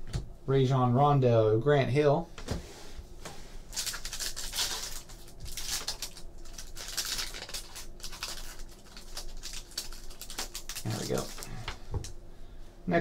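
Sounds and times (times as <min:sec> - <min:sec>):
foil wrapper tearing and crinkling: 0:03.7 - 0:11.6.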